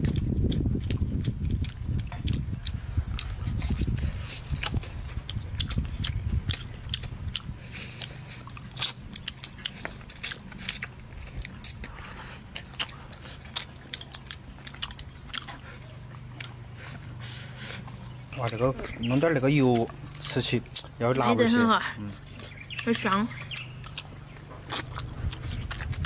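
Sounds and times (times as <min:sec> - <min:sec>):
wet mouth clicks and lip smacks: 0:00.0 - 0:16.6, 0:22.4 - 0:26.0
person chewing: 0:00.0 - 0:21.2, 0:22.0 - 0:26.0.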